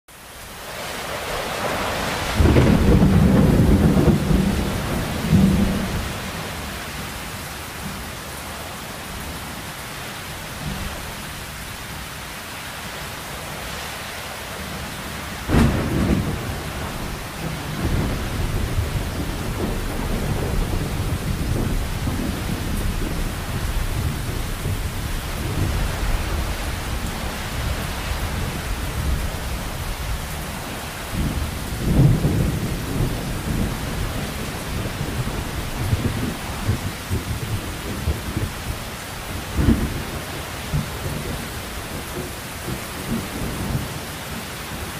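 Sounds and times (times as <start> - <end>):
heavy rain: 0.1 - 44.9
thunder rumbling: 1.3 - 6.8, 15.4 - 44.1
thunder crack: 2.1 - 6.2, 15.5 - 26.6, 31.2 - 38.5.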